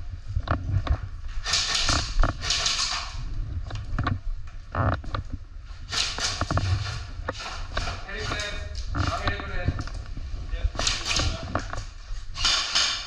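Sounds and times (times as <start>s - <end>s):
sharp clicks and knocks: 0.4s - 10.1s, 10.8s - 13.0s.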